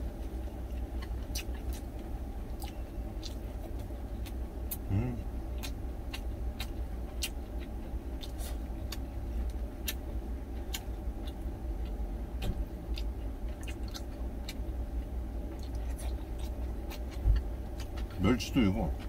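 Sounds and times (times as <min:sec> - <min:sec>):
close-miked chewing: 0:00.0 - 0:19.0
steady low hum: 0:00.0 - 0:19.0.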